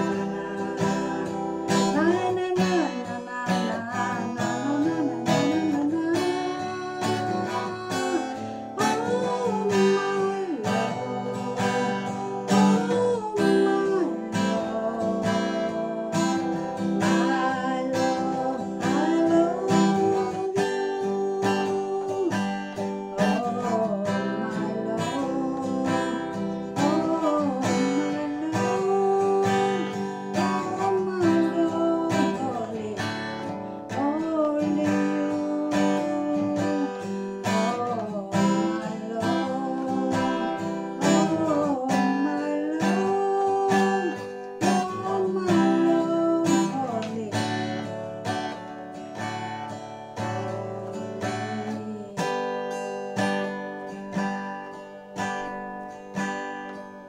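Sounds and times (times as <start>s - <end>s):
acoustic guitar: 0.0s - 57.0s
woman singing: 0.0s - 57.0s.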